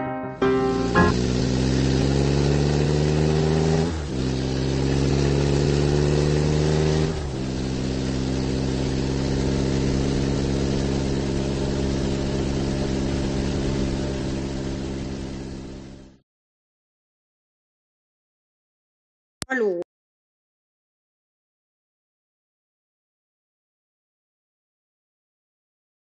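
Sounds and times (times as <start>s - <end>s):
car engine accelerating: 0.6s - 16.2s.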